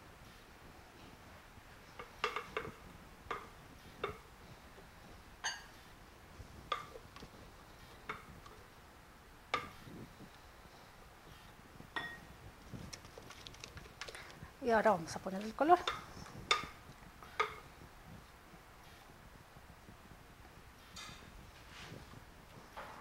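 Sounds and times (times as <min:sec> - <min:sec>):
glass bowls clinking: 0:05.4 - 0:05.8, 0:12.0 - 0:12.3.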